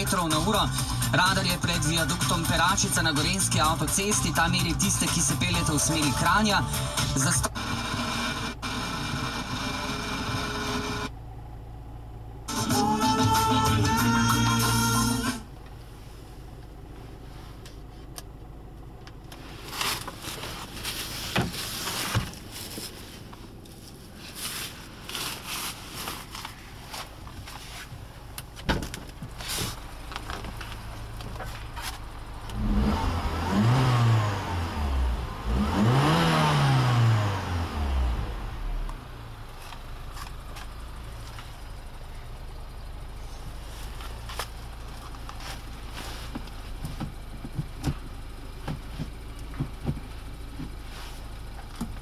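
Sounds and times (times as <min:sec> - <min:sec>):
car engine idling and revving: 0:00.0 - 0:52.0
clicks and knocks inside car: 0:26.2 - 0:32.0, 0:43.5 - 0:50.9, 0:51.5 - 0:52.0.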